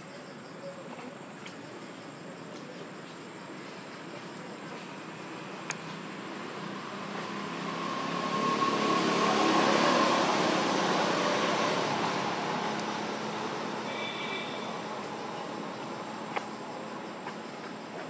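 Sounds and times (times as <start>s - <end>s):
vehicle engine passing by: 5.4s - 16.3s.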